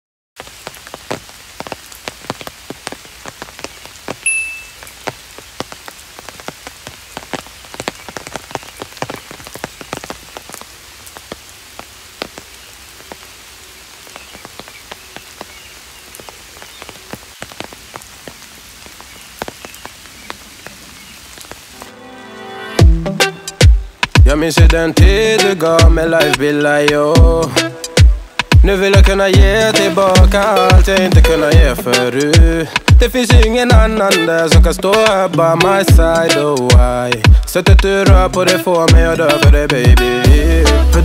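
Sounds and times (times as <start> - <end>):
raindrops ticking: 0.4 - 21.9, 23.1 - 41.0
rain falling: 0.4 - 41.0
high chirp: 4.2 - 4.8.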